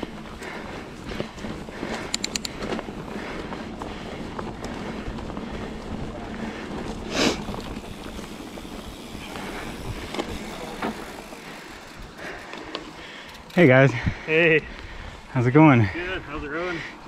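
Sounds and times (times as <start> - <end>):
wind rush on microphone: 0.0 - 10.5
bike tyre and drivetrain rattle: 0.0 - 16.0
small ticks: 1.9 - 2.8.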